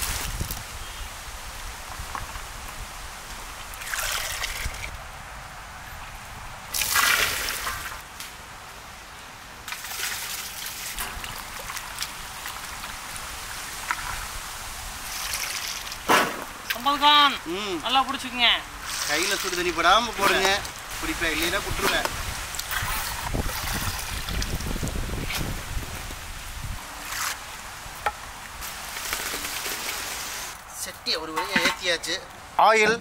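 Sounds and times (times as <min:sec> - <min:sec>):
hot water sloshing and dripping: 0:03.5 - 0:05.0, 0:06.7 - 0:08.0, 0:09.7 - 0:16.8, 0:18.7 - 0:30.6.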